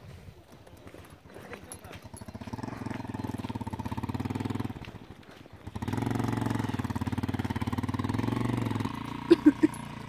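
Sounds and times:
motorcycle engine running: 0.6s - 10.0s.

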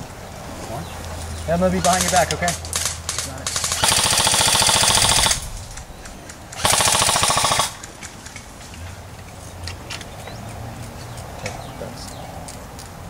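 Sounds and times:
airsoft rifle full-auto bursts: 1.8s - 5.9s, 6.5s - 8.0s.

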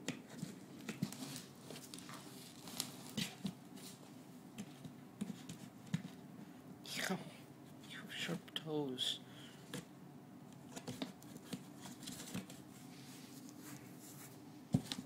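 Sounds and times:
cat scratching and rustling in box: 10.7s - 12.6s.

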